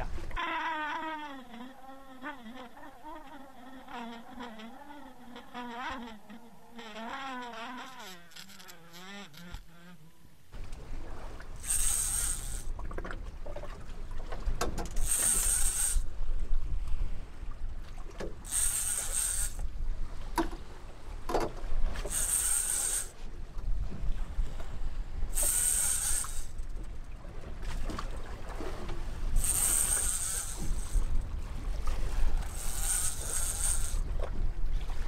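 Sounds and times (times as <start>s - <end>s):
low rumble of wind and boat: 0.0s - 35.0s
fishing reel cranking: 0.4s - 9.9s, 11.6s - 12.8s, 14.9s - 16.2s, 18.4s - 19.7s, 22.0s - 23.2s, 25.3s - 26.9s, 29.3s - 31.2s, 32.1s - 34.2s.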